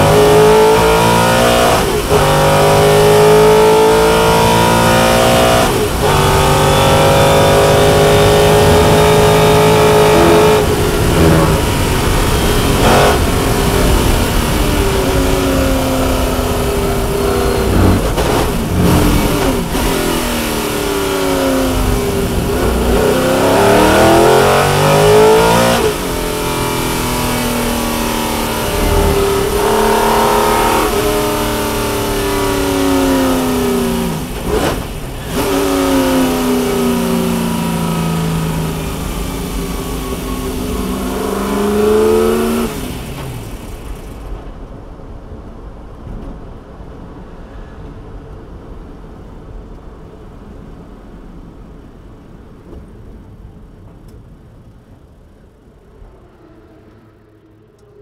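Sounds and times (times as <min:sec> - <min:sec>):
race car engine accelerating: 0:00.0 - 0:44.2.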